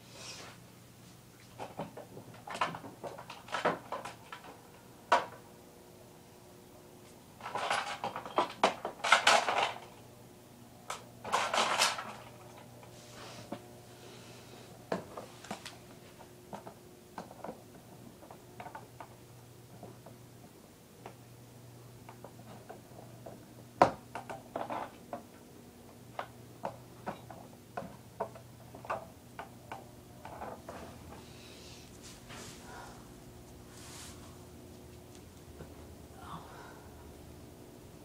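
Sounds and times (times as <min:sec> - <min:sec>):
steady low hum: 0:09.4 - 0:38.0
objects knocking and clicking: 0:22.0 - 0:31.2.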